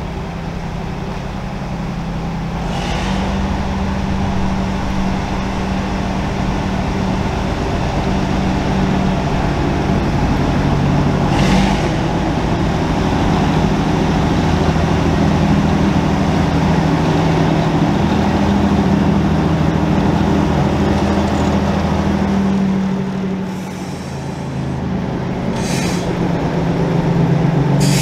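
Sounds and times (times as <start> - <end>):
diesel locomotive engine running: 0.0 - 28.0
short hiss: 25.6 - 26.2, 27.8 - 28.0.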